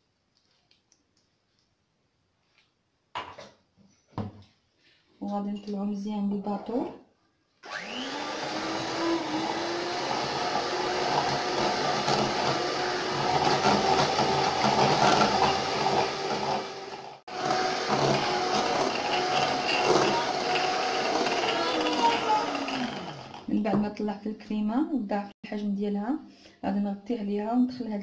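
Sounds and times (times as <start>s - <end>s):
electric mixer whining: 7.6s - 23.5s.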